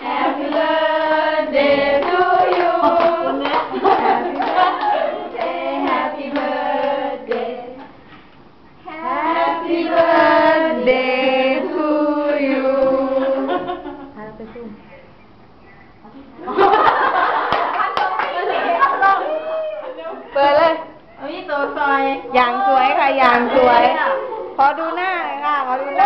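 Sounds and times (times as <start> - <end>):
group singing birthday song: 0.0 - 14.1, 23.0 - 24.2
hands clapping: 2.0 - 6.5, 17.5 - 18.5.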